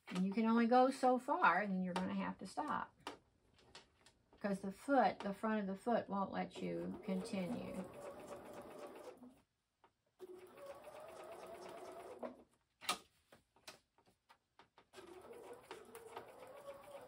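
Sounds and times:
sewing machine stitching: 6.5 - 9.4, 10.2 - 12.4, 14.9 - 17.0.

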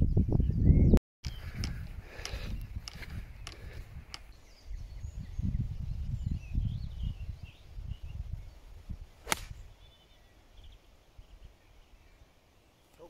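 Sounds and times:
golf club striking ball: 9.2 - 9.6.

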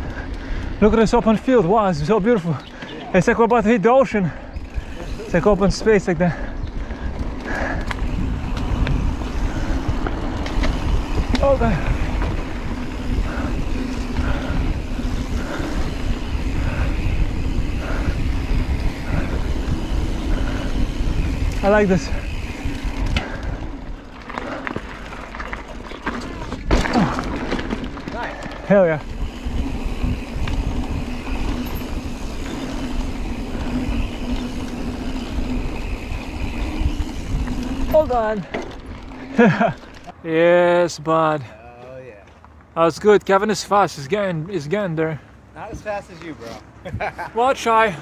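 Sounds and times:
bike tyres rolling over dirt: 0.0 - 44.8
wind noise: 4.3 - 39.8.

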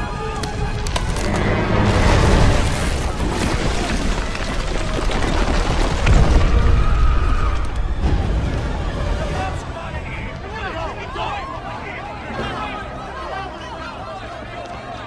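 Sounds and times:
film music: 0.0 - 4.4, 6.1 - 15.0
rumbling explosion boom: 1.7 - 9.2.

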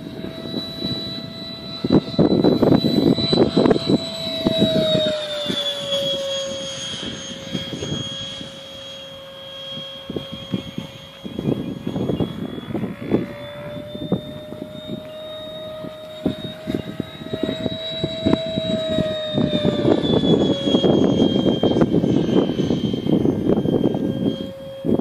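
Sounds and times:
electric ducted fan whine: 0.0 - 25.0
wind buffeting microphone: 0.0 - 25.0.

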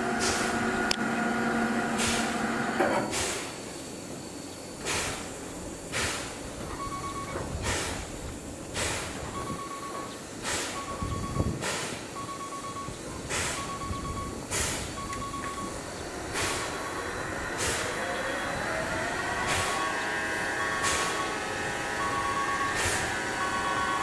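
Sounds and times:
steam locomotive hissing: 0.0 - 24.0
short electronic beep: 6.7 - 7.4, 10.8 - 11.5, 12.2 - 14.4, 15.0 - 15.7
whine gliding in pitch: 15.0 - 24.0.

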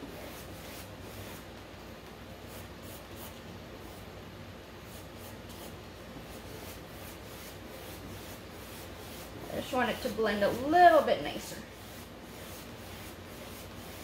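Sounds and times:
brush working paint on palette: 0.0 - 1.6, 2.4 - 4.1, 4.8 - 14.0
paintbrush swishing on canvas: 4.9 - 14.0.

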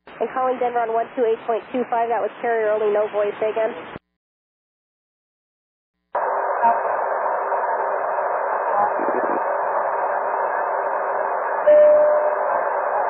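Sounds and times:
radio static hiss: 6.2 - 11.6.

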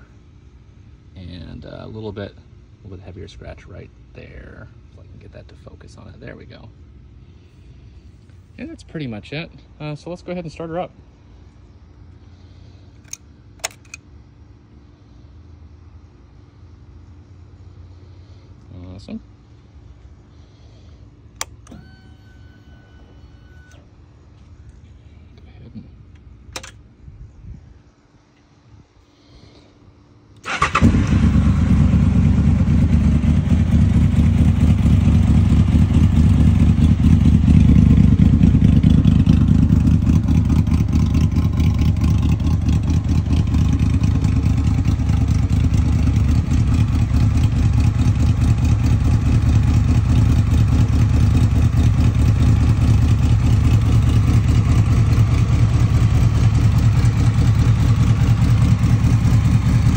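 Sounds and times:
motorcycle engine starting and idling: 12.9 - 14.1, 21.3 - 24.0, 26.0 - 26.9, 30.3 - 59.9.

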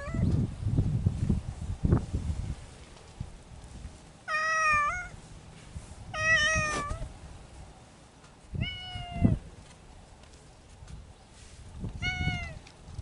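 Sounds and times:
cat meowing: 4.3 - 5.2, 6.2 - 7.1, 8.6 - 9.4, 12.0 - 12.6.

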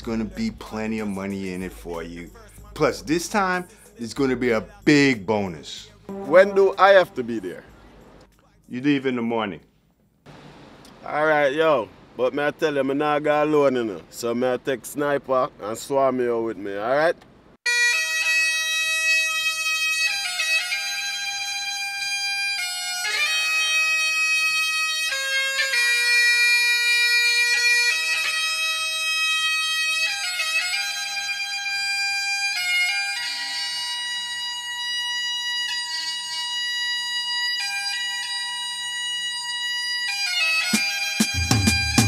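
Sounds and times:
bagpipe drone: 6.1 - 7.6, 17.7 - 42.0
bagpipe slow melody: 6.1 - 7.9, 17.6 - 42.0.

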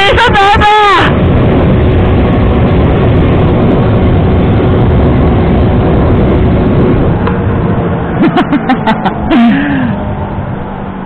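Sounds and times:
motorcycle engine hum: 0.0 - 11.0
wind rushing over microphone: 0.0 - 11.0.

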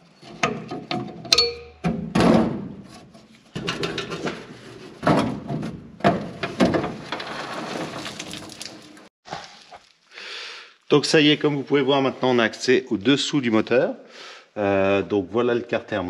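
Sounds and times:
cover scraping and rattling: 2.1 - 9.0.

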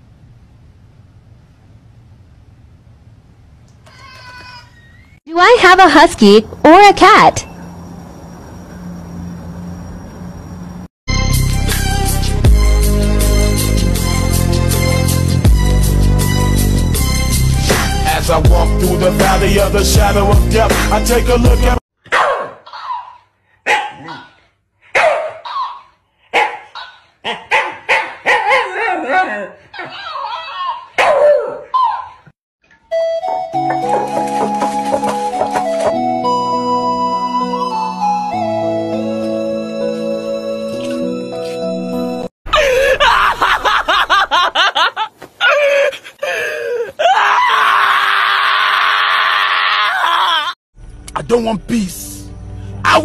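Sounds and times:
dog barking and yipping: 22.0 - 32.3.

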